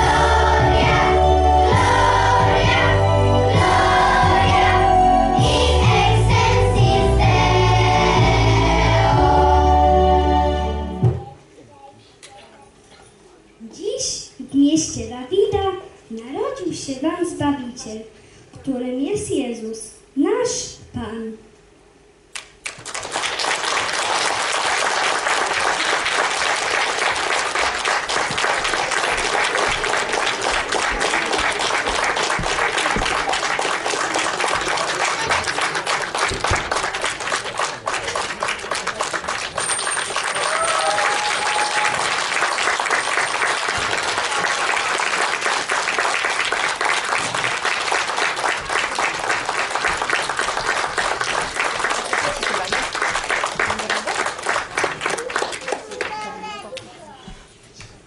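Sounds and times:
audience applauding: 22.4 - 56.5.

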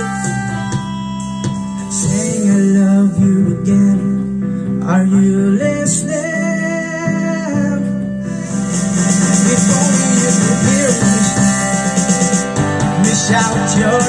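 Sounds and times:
karaoke music over loudspeakers: 0.0 - 14.0.

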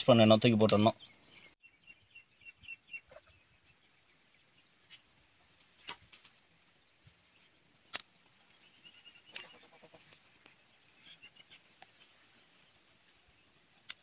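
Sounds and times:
faint bird chirps: 0.7 - 14.0.

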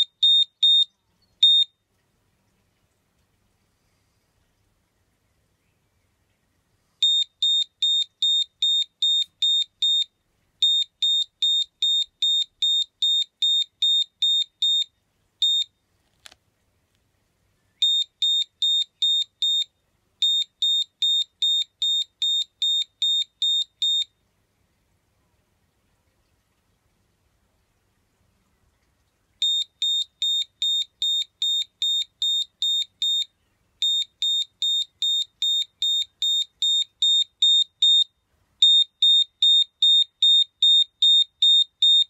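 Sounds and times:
high-pitched alarm beeps: 7.0 - 15.7, 17.8 - 24.1, 29.4 - 42.0.

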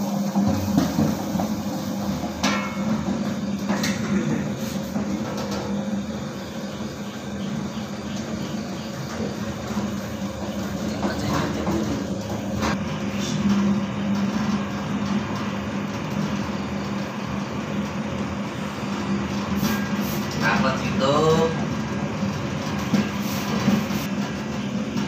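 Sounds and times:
dough mixer motor hum: 0.0 - 19.6.

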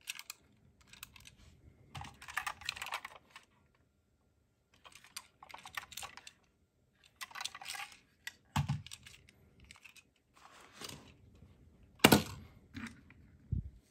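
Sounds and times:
toy cars clicking and rattling: 0.0 - 3.6, 4.8 - 10.2.

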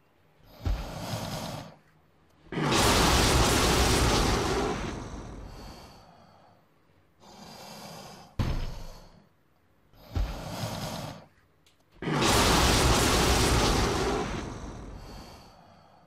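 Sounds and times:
breathy creature snarls: 0.4 - 1.9, 2.5 - 6.3, 7.2 - 9.2, 10.0 - 11.4, 12.0 - 16.0
fire-breath rush: 0.4 - 9.3, 9.9 - 11.3, 12.0 - 16.0.

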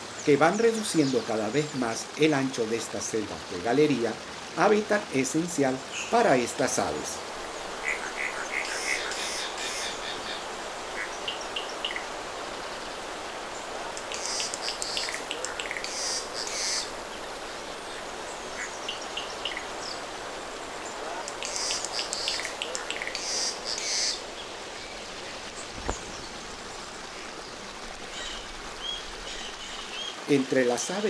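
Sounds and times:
forest stream rushing: 0.0 - 31.0
jay giving harsh rasping calls: 7.8 - 10.4, 13.8 - 16.9, 21.0 - 24.2
thin bird chirps: 14.0 - 16.9, 21.2 - 24.2.

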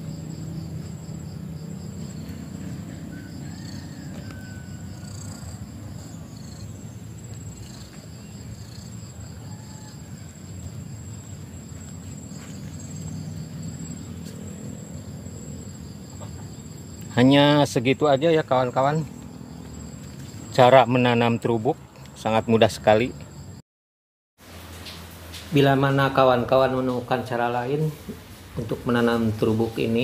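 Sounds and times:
insect high-pitched trill: 0.0 - 23.6.

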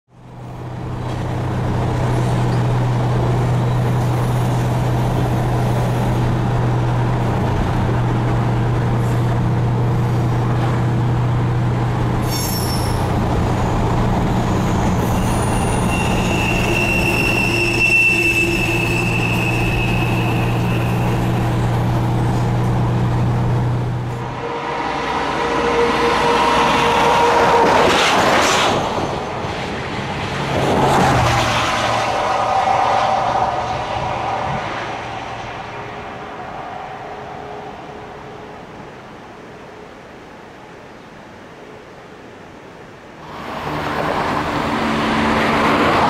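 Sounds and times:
car road noise and drone: 0.1 - 46.0
train wheel squeal: 12.2 - 21.6.

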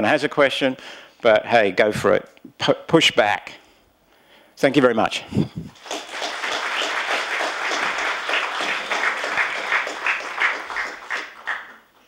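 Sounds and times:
audience applauding: 5.7 - 11.9.

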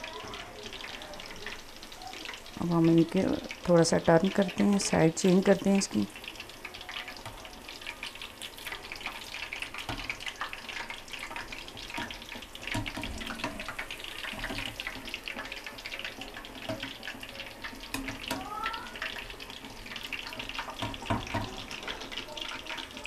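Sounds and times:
oil crackling and bubbling: 0.0 - 23.0
metal spoon knocking pan: 11.8 - 15.6, 16.6 - 17.0, 20.0 - 22.1.

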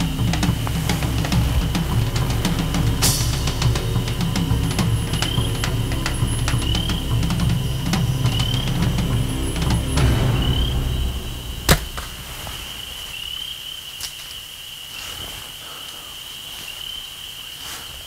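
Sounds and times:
music: 0.0 - 12.7.

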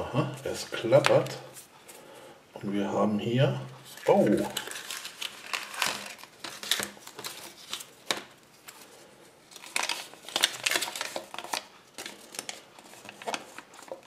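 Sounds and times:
paper crinkling: 3.8 - 14.0.

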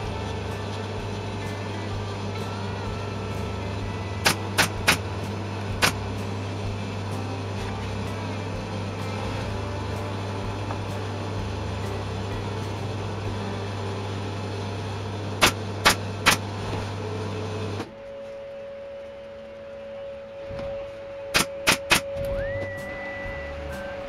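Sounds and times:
steady mechanical hum: 0.0 - 24.0
staple gun firing: 4.2 - 5.0, 15.4 - 16.5, 21.3 - 22.1.

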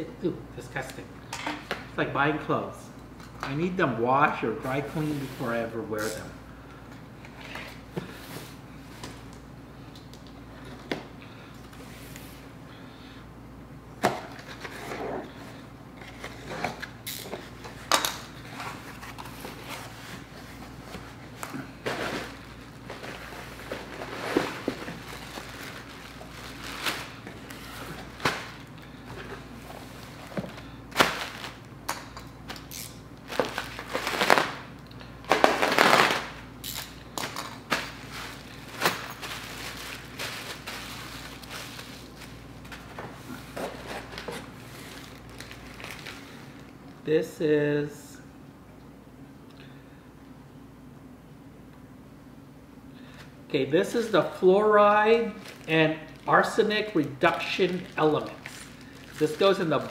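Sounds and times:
plastic wrapping crinkling: 21.6 - 28.9, 29.8 - 31.7, 33.2 - 46.7, 55.1 - 59.9.

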